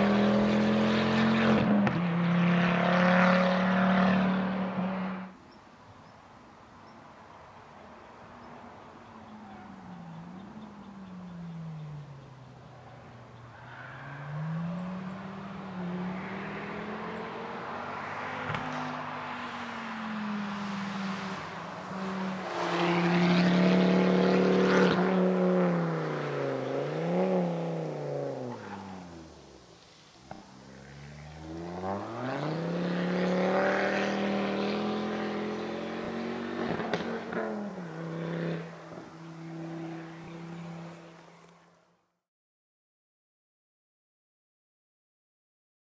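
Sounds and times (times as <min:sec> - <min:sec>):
car engine revving: 0:00.0 - 0:05.3, 0:13.6 - 0:29.7, 0:30.3 - 0:41.2.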